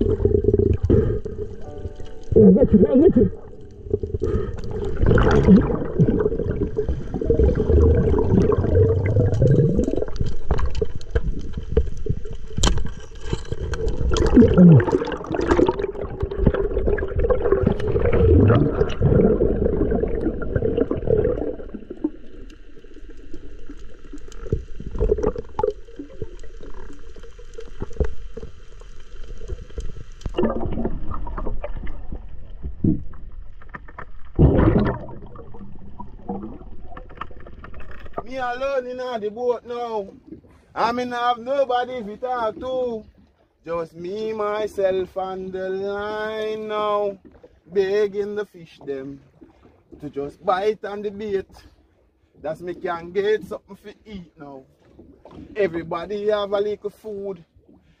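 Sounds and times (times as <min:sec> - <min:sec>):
low underwater rumble: 0:00.0 - 0:38.7
underwater bubbling gurgles: 0:00.0 - 0:38.7, 0:39.6 - 0:40.7, 0:48.8 - 0:50.5.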